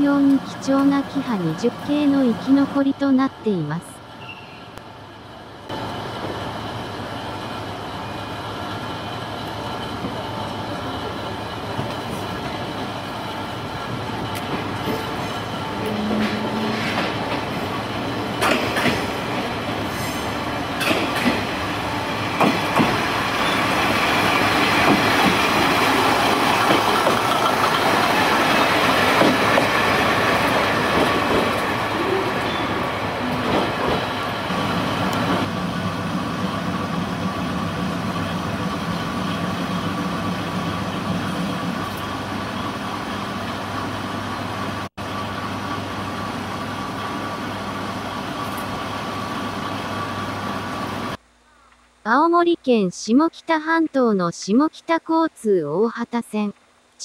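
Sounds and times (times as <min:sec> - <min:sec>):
train running noise: 0:00.0 - 0:51.2
train wheels clacking over rail joints: 0:18.4 - 0:19.2, 0:20.8 - 0:21.5, 0:22.4 - 0:23.1, 0:24.8 - 0:25.7, 0:26.3 - 0:29.7, 0:30.5 - 0:31.7.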